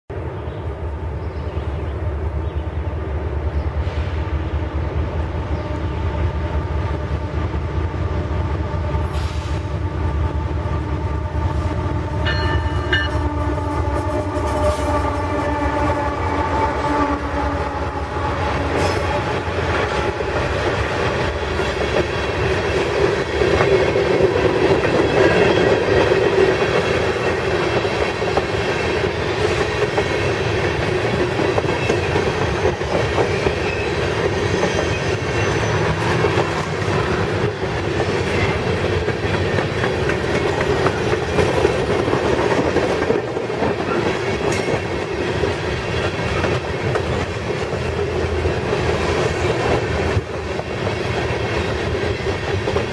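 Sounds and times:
steel wheels rolling on rails: 10.8s - 52.9s.

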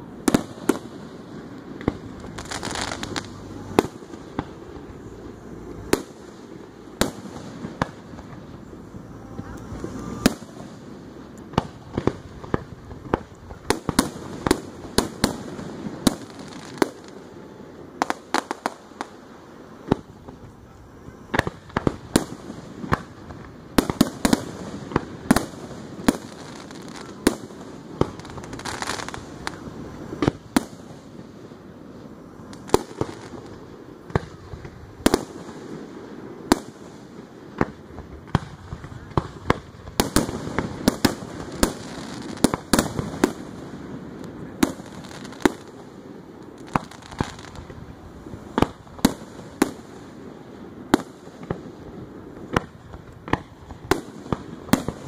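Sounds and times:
firework shells bursting: 0.2s - 17.2s.

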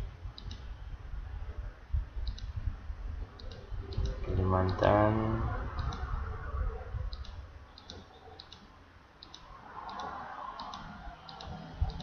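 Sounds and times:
computer mouse clicking: 0.4s - 0.7s, 2.2s - 2.6s, 3.4s - 5.0s, 5.8s - 6.1s, 7.1s - 12.0s.

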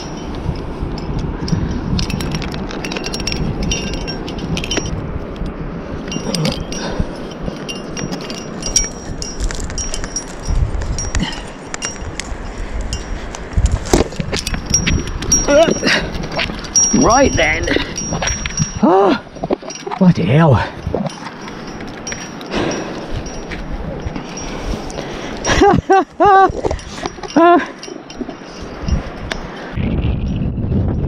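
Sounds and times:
climbing gear clinking: 0.0s - 29.8s
wind rumble on microphone: 0.0s - 31.0s.

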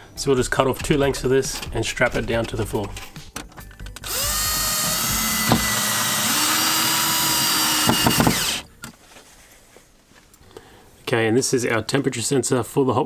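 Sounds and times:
cordless drill driving screw: 4.0s - 8.7s.

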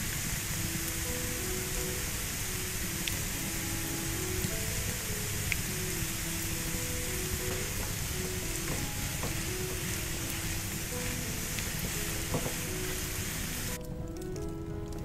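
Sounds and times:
onions sizzling in oil: 0.0s - 13.8s
spatula tapping pan: 7.2s - 10.5s, 11.1s - 13.0s.

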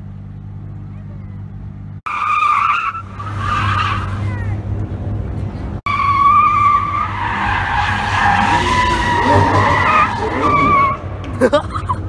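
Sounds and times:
car engine running: 0.0s - 2.1s
tyres squealing: 5.9s - 11.2s.

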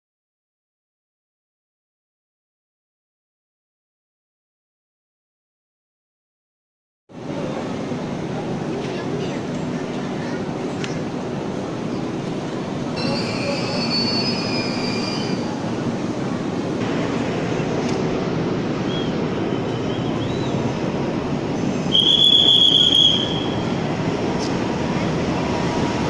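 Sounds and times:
train rumbling: 7.1s - 26.0s
wheels squealing: 13.0s - 15.6s, 21.9s - 23.8s.

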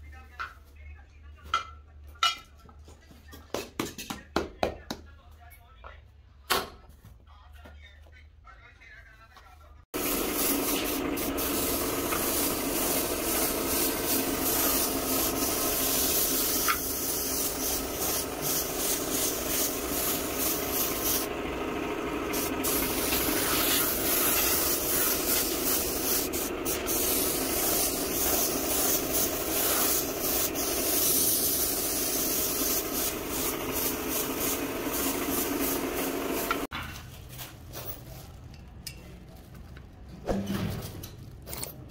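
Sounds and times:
spray gun hissing: 10.0s - 36.7s.

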